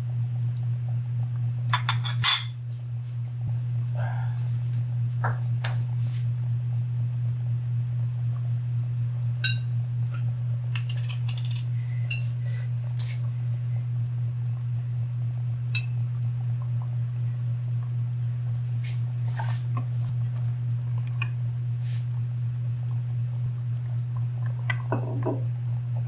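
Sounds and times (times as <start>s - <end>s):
low hum: 0.0s - 26.0s.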